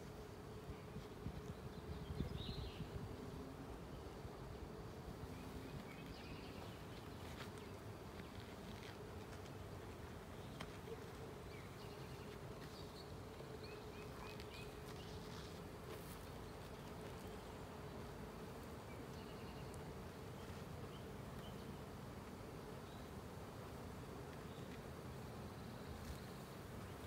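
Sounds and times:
bees buzzing: 0:00.0 - 0:27.0.

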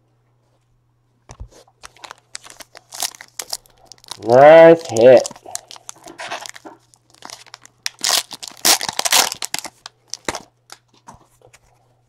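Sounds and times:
foil wrapper tearing and crinkling: 0:01.8 - 0:10.8.

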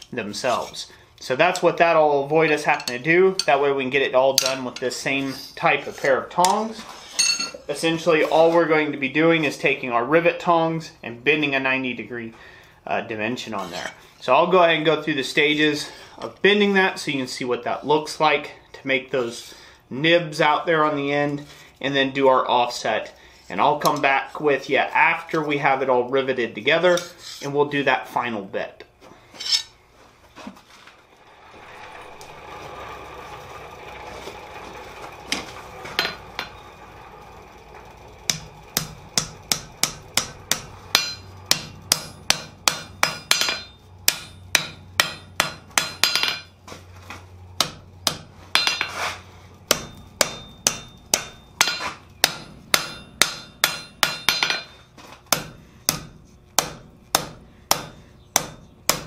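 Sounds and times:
hammer striking hot steel on anvil: 0:04.3 - 0:04.9, 0:35.3 - 0:36.6, 0:38.3 - 0:46.5, 0:47.6 - 0:59.0.

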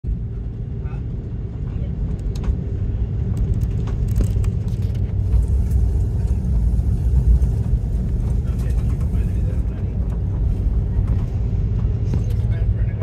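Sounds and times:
jet engines at takeoff power: 0:00.1 - 0:13.0.

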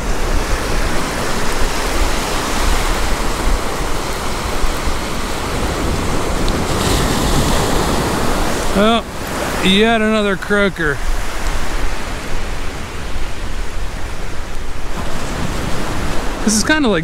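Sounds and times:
ocean surf washing onto beach: 0:00.0 - 0:17.0
wind rumbling on microphone: 0:00.0 - 0:17.0.

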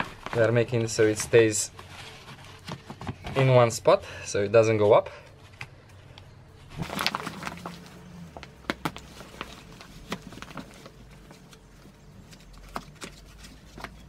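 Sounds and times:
fabric rustling: 0:00.0 - 0:03.5, 0:06.5 - 0:14.0.

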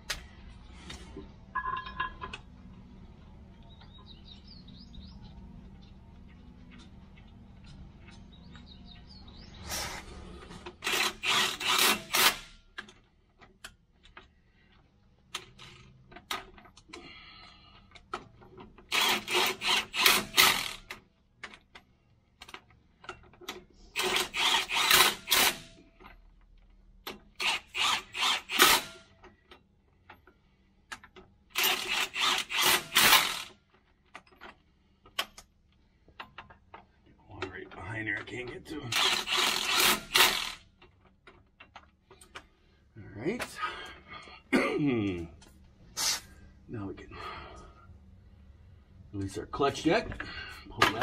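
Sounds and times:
cordless tool rapid clicking: 0:10.8 - 0:12.4, 0:18.9 - 0:20.8, 0:24.0 - 0:25.6, 0:31.6 - 0:33.5, 0:38.9 - 0:40.6.

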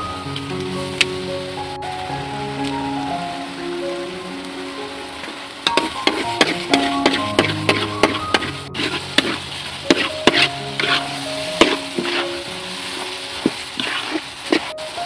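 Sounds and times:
food sizzling: 0:00.0 - 0:15.0
soft background music: 0:00.0 - 0:15.0
spatula scraping metal wok: 0:05.6 - 0:14.9.

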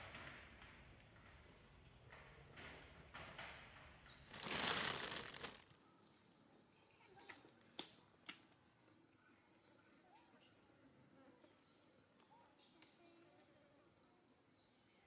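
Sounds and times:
noisy rustle: 0:02.4 - 0:05.8.

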